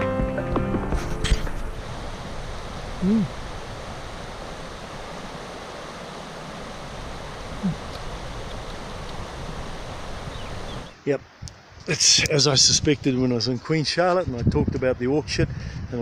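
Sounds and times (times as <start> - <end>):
stream rushing over stones: 1.6 - 11.0.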